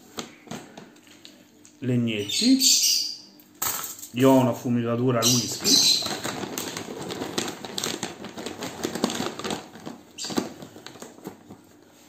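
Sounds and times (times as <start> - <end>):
wood chips rattling and rustling: 5.2 - 11.6.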